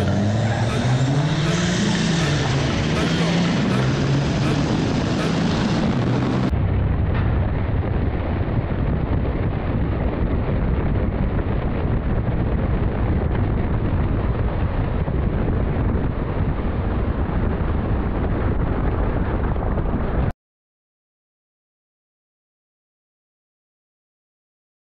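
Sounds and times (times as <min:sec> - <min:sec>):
truck running noise: 0:00.0 - 0:11.0
wind buffeting microphone: 0:00.0 - 0:20.3.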